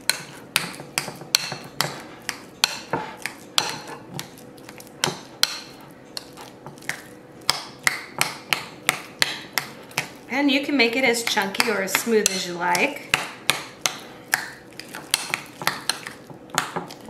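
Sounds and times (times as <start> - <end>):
avocado squelching: 11.2 - 17.0.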